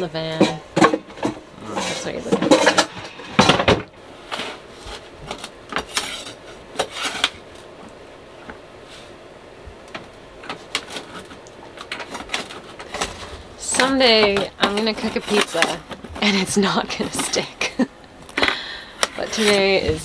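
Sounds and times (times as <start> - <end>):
metal blade scraping baking sheet: 5.8 - 7.4, 12.0 - 17.7, 19.2 - 20.0.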